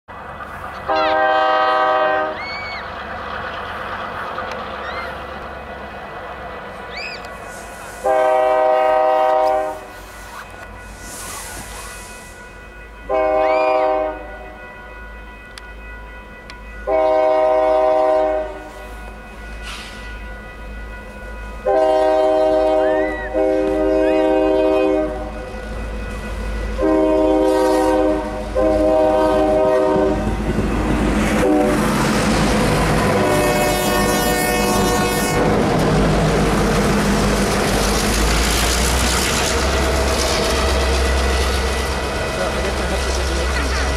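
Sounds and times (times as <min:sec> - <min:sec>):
wheels on rails: 0:00.1 - 0:08.1, 0:18.9 - 0:43.9
locomotive rumble passing: 0:00.1 - 0:43.9
locomotive air horn blasts: 0:00.8 - 0:02.4, 0:07.7 - 0:10.4, 0:13.1 - 0:14.5, 0:16.8 - 0:18.8, 0:21.6 - 0:25.4, 0:26.8 - 0:30.4, 0:31.2 - 0:32.0, 0:33.0 - 0:35.6.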